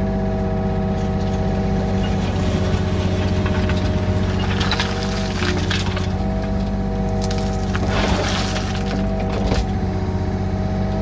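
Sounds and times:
excavator diesel engine running: 0.0s - 11.0s
gravel scraping against bucket: 1.4s - 9.8s.

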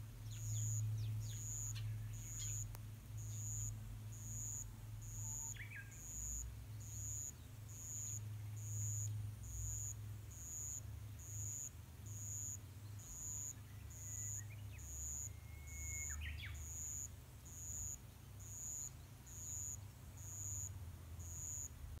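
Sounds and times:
low outdoor rumble: 0.0s - 17.4s
sparrows chirping: 0.2s - 9.2s, 11.1s - 20.0s.

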